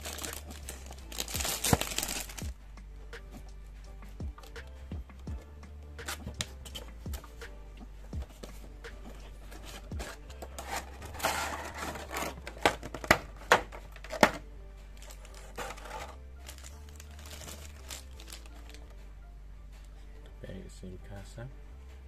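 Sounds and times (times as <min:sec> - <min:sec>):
plastic packaging crinkling: 0:00.0 - 0:02.4, 0:15.0 - 0:18.8
background music: 0:00.0 - 0:22.0.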